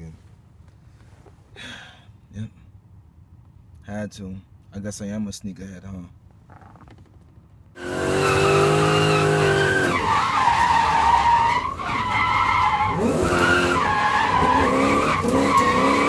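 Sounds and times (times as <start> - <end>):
car engine revving: 7.8 - 16.0
tyres squealing: 7.8 - 16.0.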